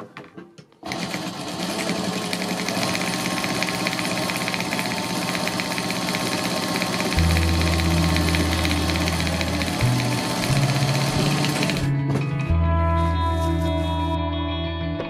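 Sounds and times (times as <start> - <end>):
sewing machine stitching: 0.8 - 11.9.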